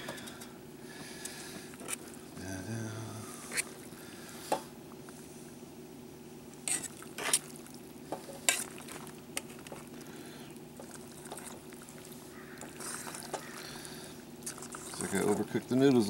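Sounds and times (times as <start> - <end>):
wet mixing of pasta: 6.6 - 16.0.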